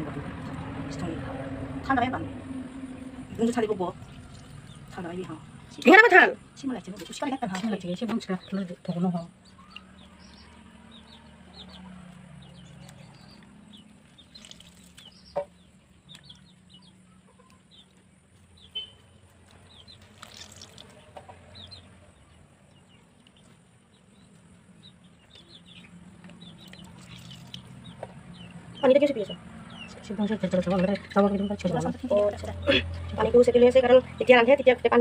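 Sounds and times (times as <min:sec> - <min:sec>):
small birds chirping: 0:02.0 - 0:35.0
chickens clucking: 0:07.6 - 0:18.6, 0:19.4 - 0:33.3.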